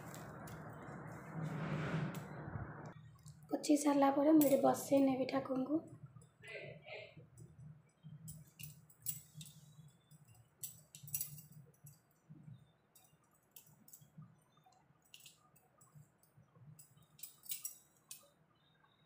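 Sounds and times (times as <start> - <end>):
low steady hum: 0.0 - 19.0
bangles clinking: 4.4 - 5.1, 8.2 - 12.3, 12.9 - 14.2, 15.0 - 18.4.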